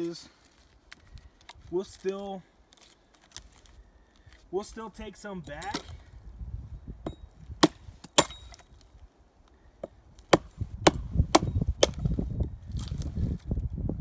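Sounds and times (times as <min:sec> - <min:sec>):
axe chopping wood: 0:05.6 - 0:06.0, 0:07.0 - 0:08.7, 0:09.8 - 0:12.2.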